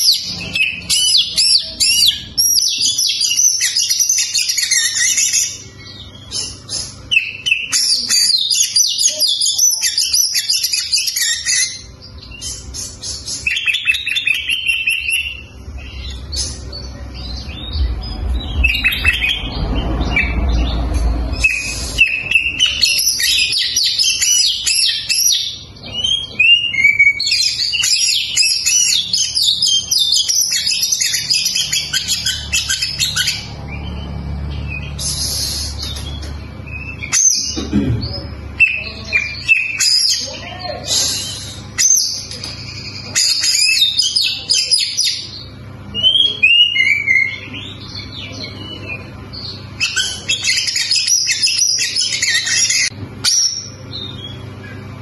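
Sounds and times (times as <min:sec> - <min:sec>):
low rumble: 0:16.8 - 0:22.0
bird singing whistled phrases: 0:21.3 - 0:34.0.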